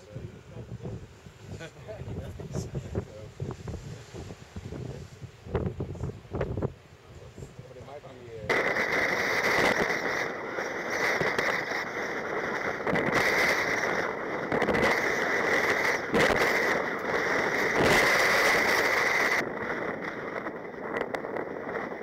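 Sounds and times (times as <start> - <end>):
wind buffeting camera: 0.0 - 22.0
choppy seawater rushing: 8.5 - 22.0.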